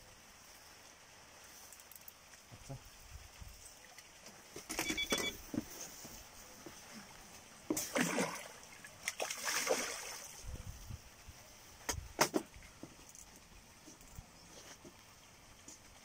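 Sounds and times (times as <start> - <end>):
fish thrashing and splashing: 7.7 - 10.4.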